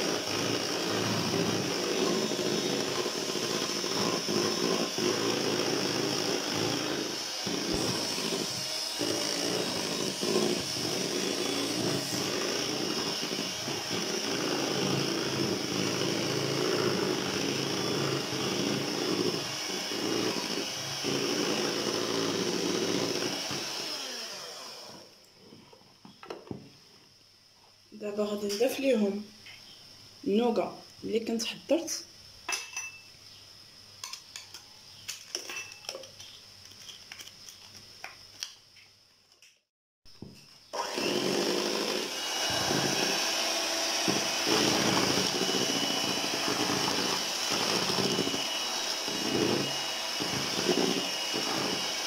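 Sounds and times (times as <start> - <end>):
electric hand mixer whipping cream: 0.0 - 25.1, 40.8 - 52.0.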